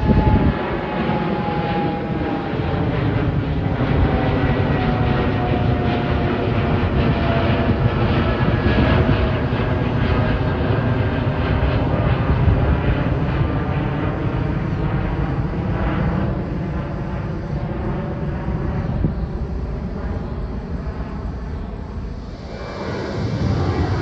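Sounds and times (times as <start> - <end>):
jet engines of climbing airliner: 0.0 - 24.0.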